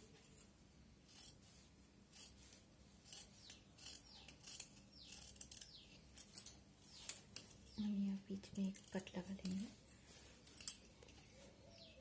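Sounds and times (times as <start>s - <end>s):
scissors snipping fabric: 2.1s - 5.8s.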